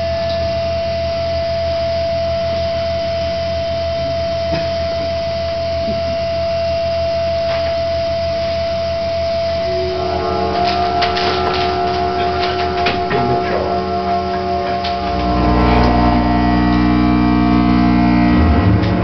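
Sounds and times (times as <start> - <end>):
low hum: 8.2 - 19.0
synthesizer drone: 8.2 - 19.0.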